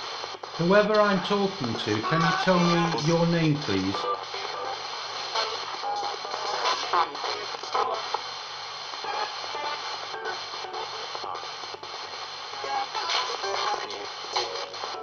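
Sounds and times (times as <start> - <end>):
radio static hiss: 0.0 - 15.0
snatches of broadcast sound: 0.0 - 15.0.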